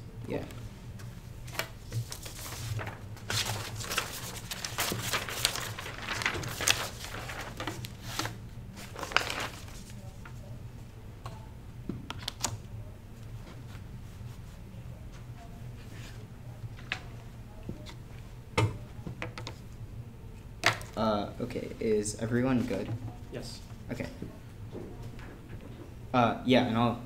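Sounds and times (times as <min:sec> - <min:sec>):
low room hum: 0:00.0 - 0:27.0
paper rustling and shuffling: 0:01.0 - 0:10.5.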